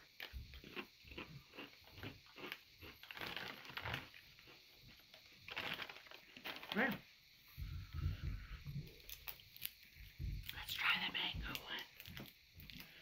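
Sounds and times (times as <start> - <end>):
potato chip crunching: 0.0 - 4.6, 5.5 - 7.0.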